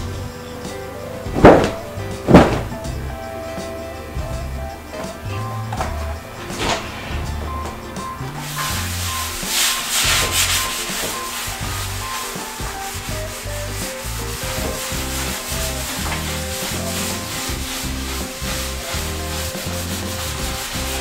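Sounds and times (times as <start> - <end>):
background music with bass line: 0.0 - 21.0
sponge rubbing on glass: 6.8 - 21.0.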